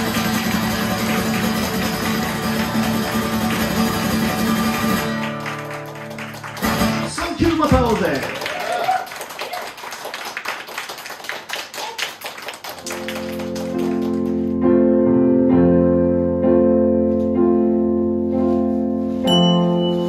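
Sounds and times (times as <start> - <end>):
keyboard playing held chords: 12.9 - 20.0.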